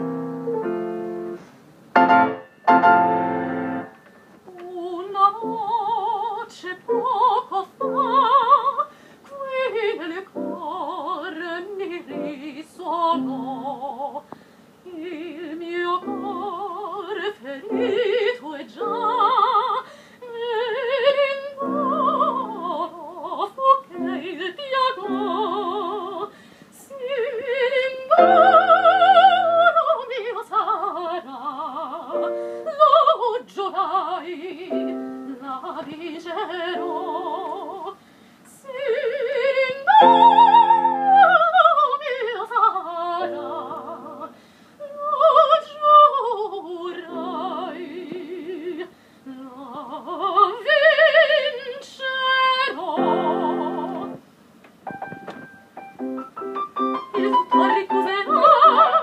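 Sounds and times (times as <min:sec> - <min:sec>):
piano accompaniment: 0:00.0 - 0:04.0, 0:28.2 - 0:29.6, 0:32.2 - 0:32.7, 0:34.7 - 0:35.6, 0:39.9 - 0:41.3, 0:53.0 - 0:54.2, 0:54.8 - 0:59.0
operatic soprano singing: 0:04.5 - 0:54.2, 0:56.8 - 0:59.0.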